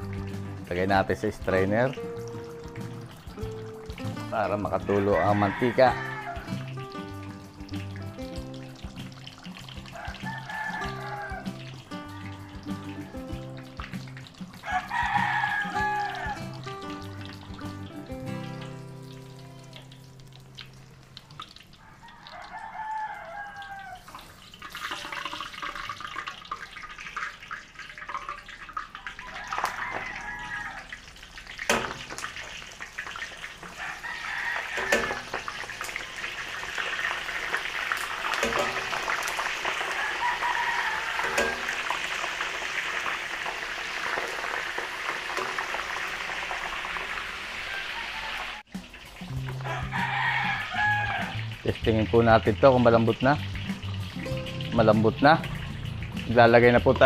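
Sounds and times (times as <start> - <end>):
food sizzling in hot oil: 0.0 - 57.0
rooster crowing: 4.8 - 6.8, 9.9 - 11.7, 14.6 - 16.6, 21.8 - 24.2, 29.0 - 31.2, 33.6 - 37.3, 38.1 - 48.7, 49.5 - 51.5.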